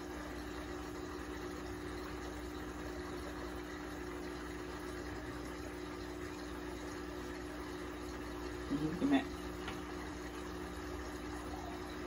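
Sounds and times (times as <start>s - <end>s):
aquarium air pump humming: 0.0s - 12.0s.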